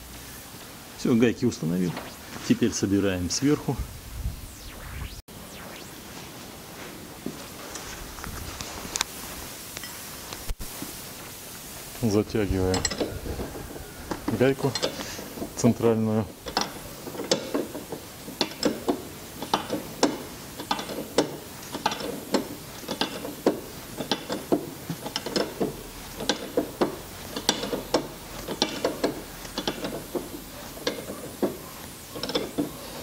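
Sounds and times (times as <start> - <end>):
ratchet wrench clicking: 18.4 - 30.2.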